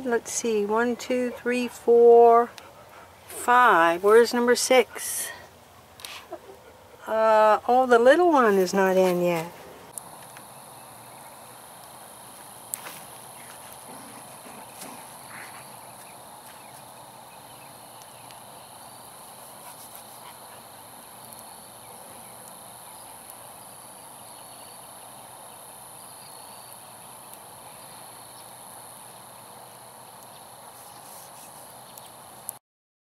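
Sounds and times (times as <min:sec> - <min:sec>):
campfire crackling: 0:00.0 - 0:32.6
crickets trilling: 0:10.0 - 0:32.4.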